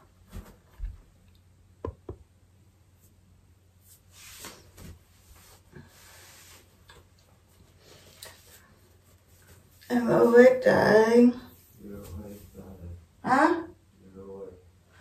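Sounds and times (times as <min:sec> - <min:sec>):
rustling of hair and clothing: 0:03.8 - 0:13.0.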